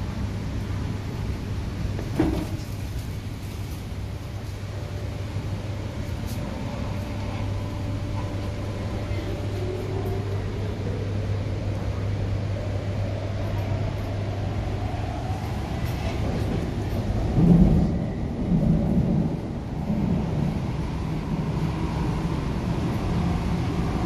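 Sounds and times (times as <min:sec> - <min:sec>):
train low hum and rumble: 0:00.0 - 0:24.0.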